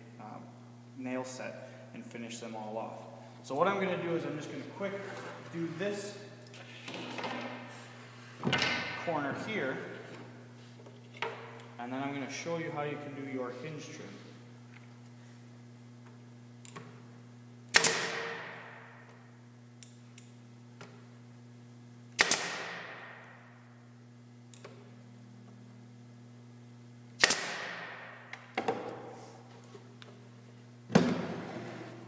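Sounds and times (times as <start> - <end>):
nail gun shots: 17.7 - 18.8, 22.2 - 23.3, 27.2 - 28.2.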